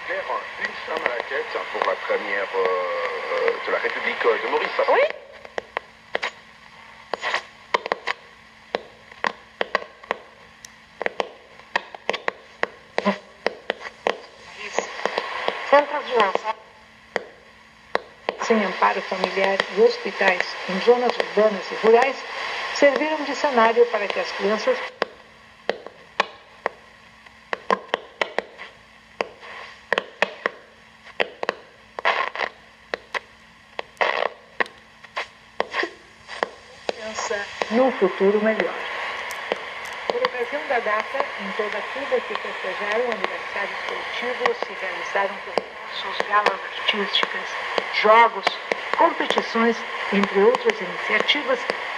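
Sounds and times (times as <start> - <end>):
faint hum: 0.0 - 51.9
radio static hiss: 0.0 - 51.9
sharp static crackles: 0.0 - 51.9.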